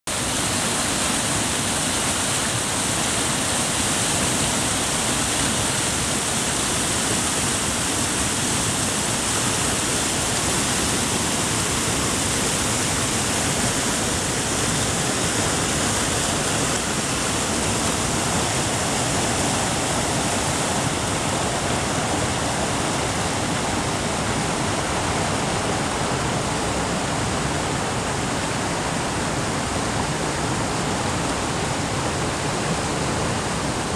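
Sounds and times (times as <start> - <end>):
river rushing over boulders: 0.1 - 33.9.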